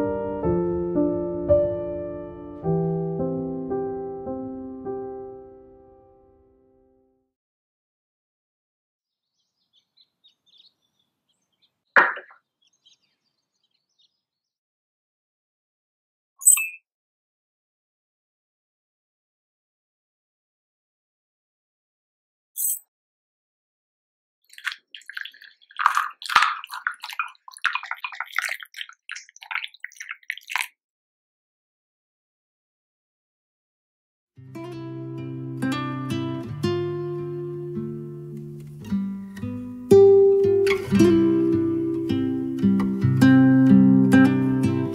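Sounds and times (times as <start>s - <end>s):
faint high bird chirps: 9.1s - 14.5s, 16.4s - 16.8s
hot water pouring into a mug: 24.5s - 30.8s
wooden spoon stirring: 24.6s - 30.7s.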